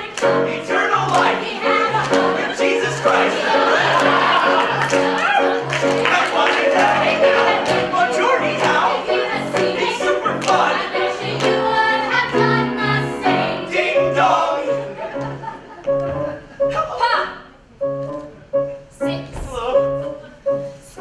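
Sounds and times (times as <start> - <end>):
cast singing together: 0.0 - 15.5.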